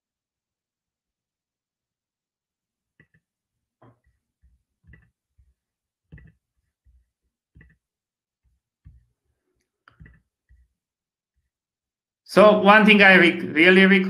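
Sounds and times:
keyboard and mouse clicking: 3.0s - 4.0s, 4.8s - 5.2s, 6.1s - 6.4s, 7.5s - 7.9s, 9.6s - 10.7s.

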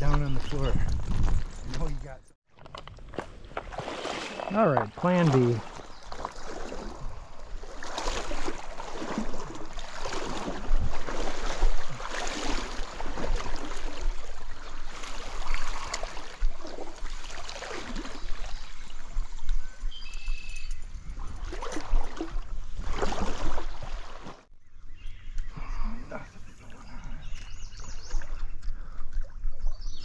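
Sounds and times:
water sloshing from wading: 3.1s - 19.5s, 21.2s - 24.5s.

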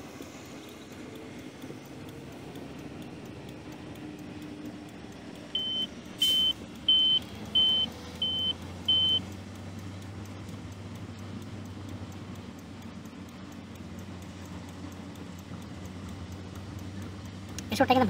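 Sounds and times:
car road and engine noise: 0.0s - 18.0s
short high electronic beeps: 5.6s - 9.2s.

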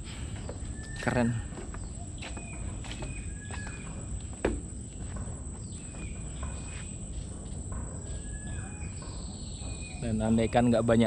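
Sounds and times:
whistled bird calls: 0.5s - 4.0s, 8.1s - 10.9s.

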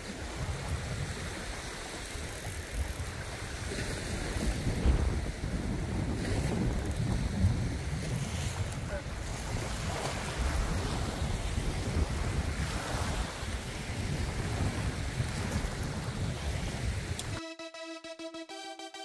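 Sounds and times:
water: 0.0s - 17.4s
wind noise on microphone: 0.0s - 17.4s
electronic music with held synth notes: 17.3s - 19.0s.

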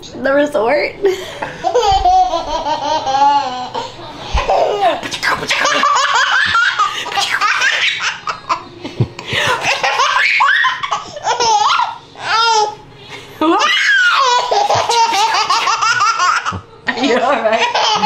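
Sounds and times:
baby laughing: 1.6s - 8.7s, 9.3s - 12.8s, 13.6s - 16.6s, 17.6s - 18.0s.

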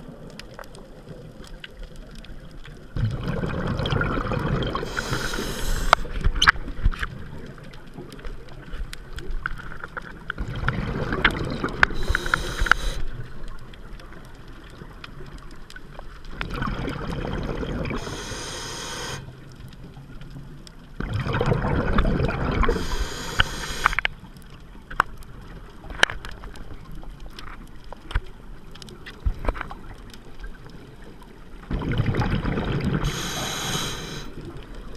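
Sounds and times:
exhaled bubbles rushing: 3.0s - 6.0s, 10.4s - 12.8s, 16.4s - 18.1s, 21.0s - 23.0s, 31.7s - 33.5s
diver breathing through regulator: 4.8s - 6.1s, 11.9s - 13.1s, 18.0s - 19.3s, 22.7s - 24.1s, 33.0s - 34.4s
sharp clicks: 11.9s - 13.0s.

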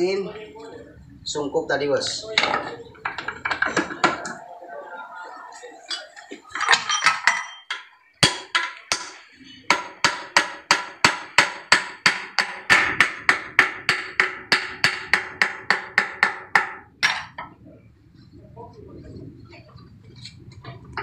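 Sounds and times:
hammer striking steel: 6.7s - 17.4s.

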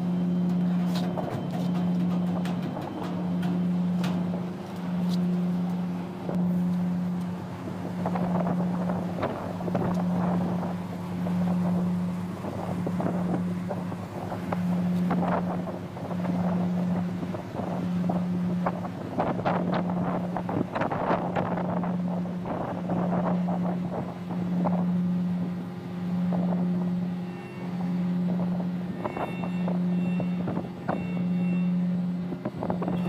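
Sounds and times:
ship diesel engine hum: 0.0s - 33.0s
wind buffeting microphone: 1.1s - 33.0s.

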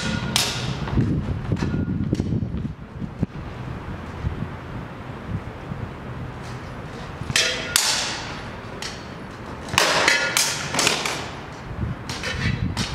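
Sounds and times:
sabres clashing: 0.0s - 0.8s, 7.3s - 11.4s
wind rumble on microphone: 0.0s - 9.6s, 10.6s - 12.9s.

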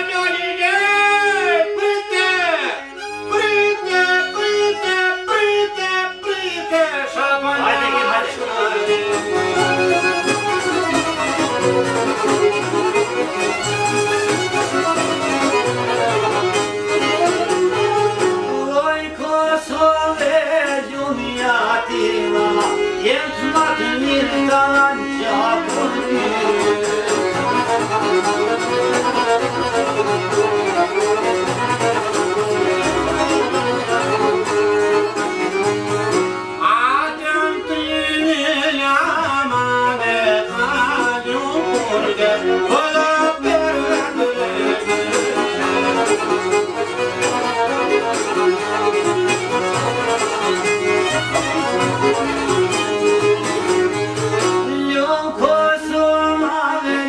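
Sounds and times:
folk ensemble playing: 0.0s - 57.0s
men singing: 3.5s - 10.2s, 18.4s - 27.3s, 36.6s - 45.9s, 54.6s - 57.0s
sliding ornamented melody: 7.7s - 18.8s, 20.3s - 36.6s, 40.6s - 54.7s.

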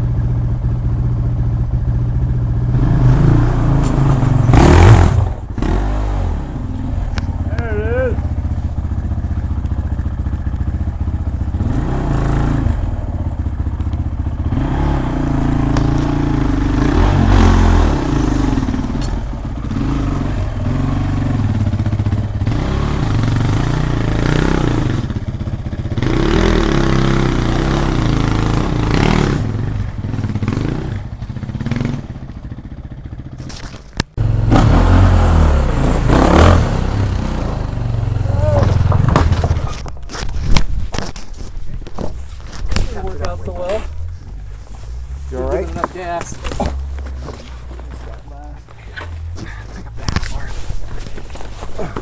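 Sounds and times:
dirt bike engine revving: 2.0s - 33.3s, 34.2s - 39.8s.

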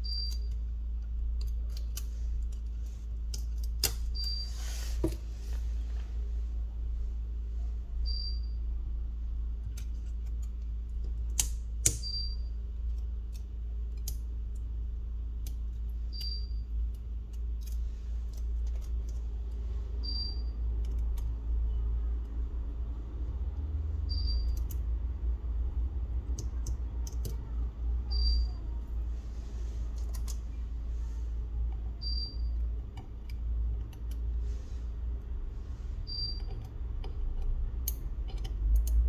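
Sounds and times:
tools clicking and tapping: 0.0s - 4.4s, 9.6s - 12.2s, 12.8s - 14.7s, 26.3s - 27.5s, 36.2s - 39.0s
steady low hum: 0.0s - 39.0s.

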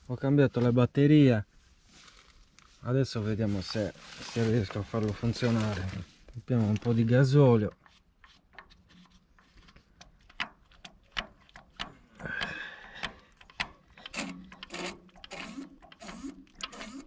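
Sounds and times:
rhythmic stroking of fuel pump: 6.8s - 17.0s
metal clicks and taps: 7.7s - 16.8s.

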